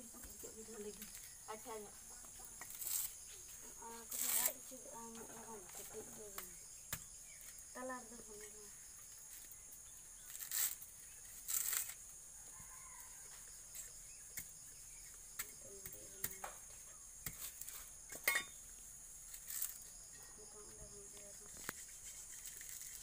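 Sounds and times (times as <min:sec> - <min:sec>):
coconut husk fibres ripping: 0:02.7 - 0:03.2, 0:04.1 - 0:04.6, 0:10.2 - 0:12.0, 0:19.2 - 0:19.8.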